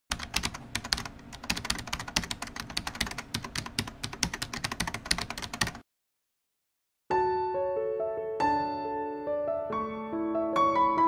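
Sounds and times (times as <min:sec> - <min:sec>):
fast typing on computer keyboard: 0:00.1 - 0:05.8.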